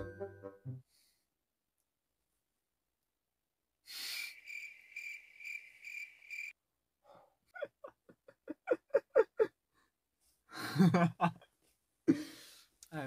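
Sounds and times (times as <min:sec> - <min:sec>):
high insect-like chirp pulsing: 0:04.0 - 0:06.6.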